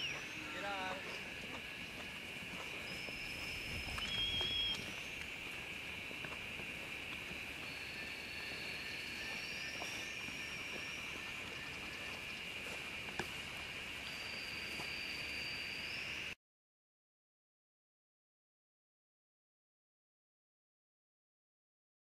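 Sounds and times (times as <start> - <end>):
high-pitched insect chorus: 0.0 - 16.4.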